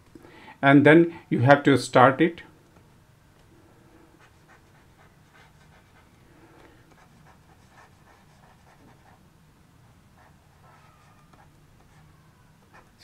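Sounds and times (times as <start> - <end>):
low steady hum: 0.0 - 13.0
stylus scratching on tablet: 4.2 - 6.1, 6.9 - 9.2, 9.8 - 13.0.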